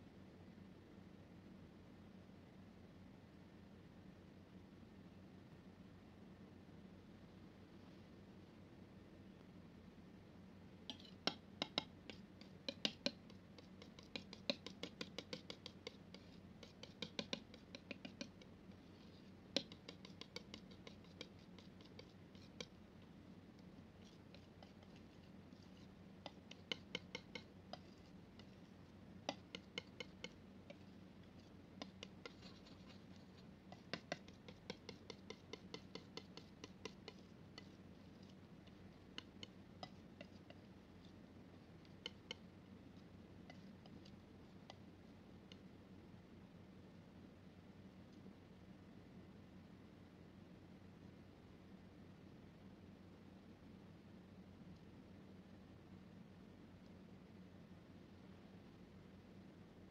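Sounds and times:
palette knife mixing thick paint: 10.8s - 45.7s.

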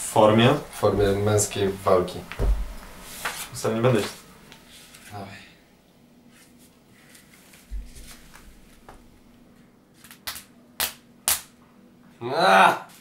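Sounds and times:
dull thump: 0.9s - 1.5s, 2.2s - 3.4s
faint rustling: 6.3s - 9.7s
fists slapping open palms: 10.2s - 11.5s.

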